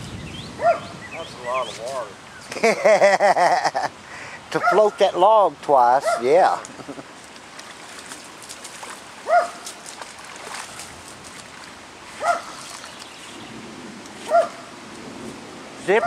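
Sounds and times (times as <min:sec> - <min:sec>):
rushing floodwater: 0:00.0 - 0:16.0
dog barking: 0:00.6 - 0:00.9, 0:04.6 - 0:05.0, 0:06.0 - 0:06.4, 0:09.2 - 0:09.6, 0:12.2 - 0:12.6, 0:14.3 - 0:14.7.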